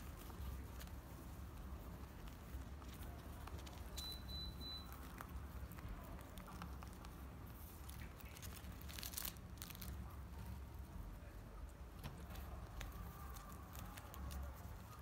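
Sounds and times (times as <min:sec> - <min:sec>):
foil wrapper crinkling: 0:02.2 - 0:10.2, 0:12.2 - 0:15.0.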